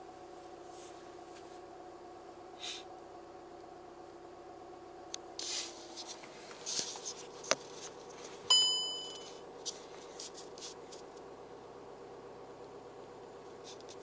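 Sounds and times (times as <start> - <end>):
faint steady hum: 0.0 - 14.0
bright electronic chime: 8.5 - 9.4.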